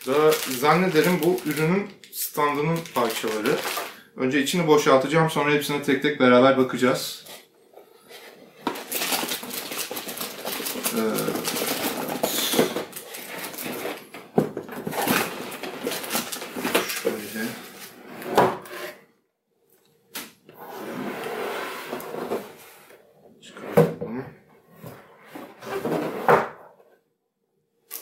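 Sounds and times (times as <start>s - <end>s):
cardboard rustling and scraping: 8.1s - 19.0s.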